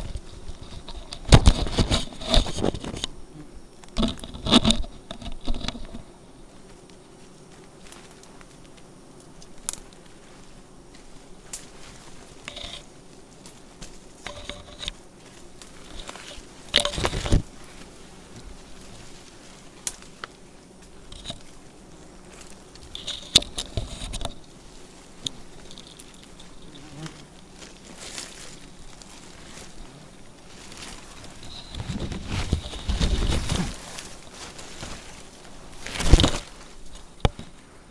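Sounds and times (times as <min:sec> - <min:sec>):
bees buzzing: 0:00.0 - 0:37.9
branches and leaves rustling: 0:00.0 - 0:37.9.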